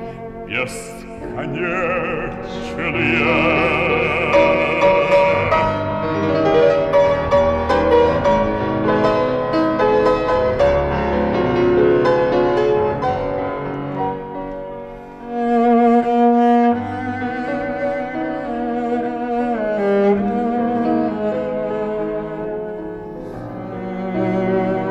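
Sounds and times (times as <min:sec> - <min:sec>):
cello and bowed strings: 0:00.0 - 0:12.8, 0:15.2 - 0:24.9
piano: 0:00.0 - 0:24.9
bass singer holding note: 0:00.4 - 0:06.1.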